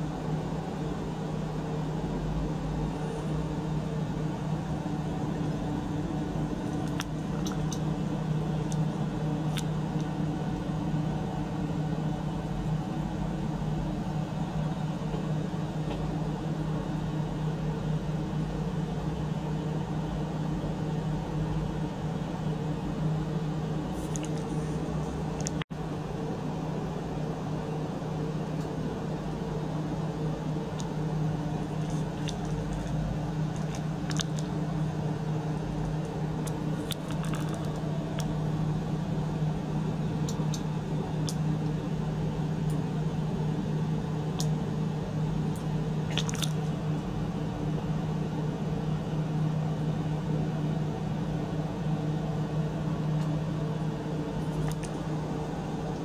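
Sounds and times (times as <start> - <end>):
circulation pump humming: 0.0 - 56.0
water churning through tubing: 31.3 - 38.6, 46.0 - 46.8.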